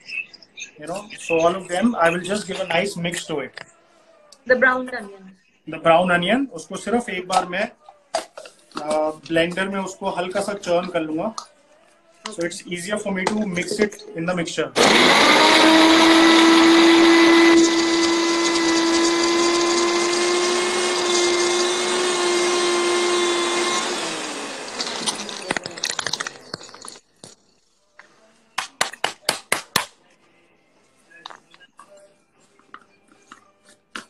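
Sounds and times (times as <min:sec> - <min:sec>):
electric blender running: 0:14.8 - 0:26.2.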